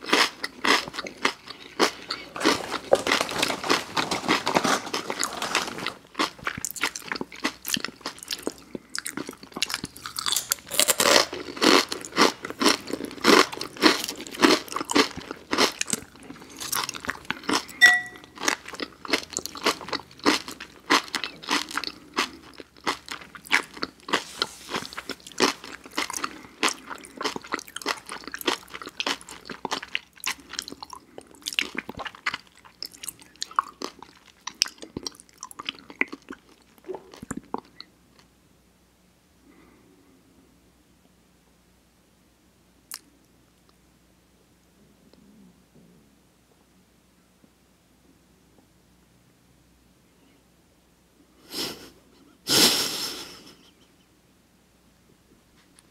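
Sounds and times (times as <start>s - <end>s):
people chewing crunchy lettuce: 0.0s - 38.3s.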